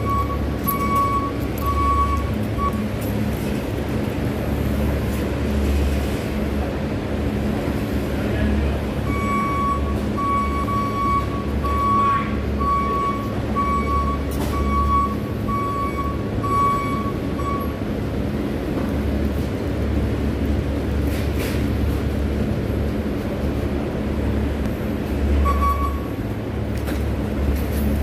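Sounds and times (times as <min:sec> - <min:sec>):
vehicle backup alarm beeping: 0:00.0 - 0:03.0, 0:09.0 - 0:17.8, 0:25.3 - 0:26.2
steady low rumble: 0:00.0 - 0:28.0.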